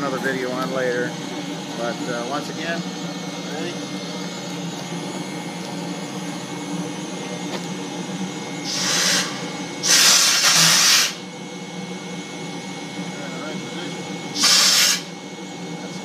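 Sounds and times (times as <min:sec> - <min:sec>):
steam engine running: 0:00.0 - 0:16.0
steam venting hisses: 0:08.6 - 0:11.2, 0:14.3 - 0:15.2.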